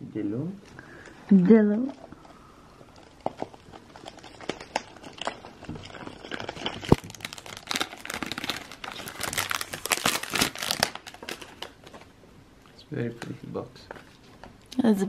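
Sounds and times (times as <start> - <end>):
cellophane crinkling: 1.0 - 12.1.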